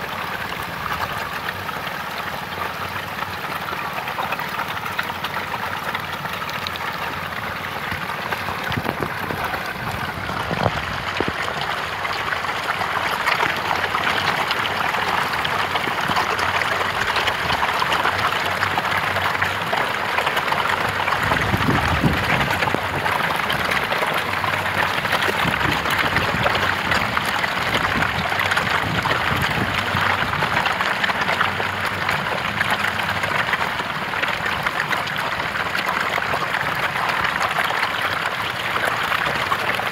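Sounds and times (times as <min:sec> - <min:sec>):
fish thrashing and splashing: 0:00.0 - 0:39.9.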